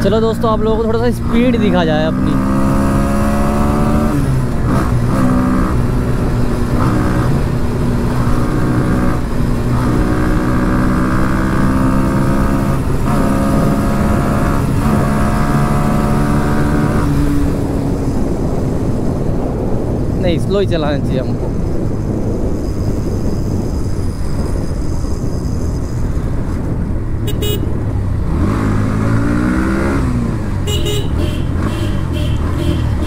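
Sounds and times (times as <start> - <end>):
wind noise: 0.0 - 33.0
motorcycle engine shifting gears: 1.1 - 20.2.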